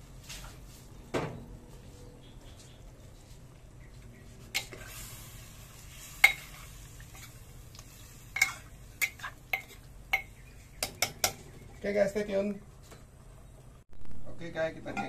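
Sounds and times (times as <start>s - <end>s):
metal ladle scraping clay pot: 8.3s - 11.5s.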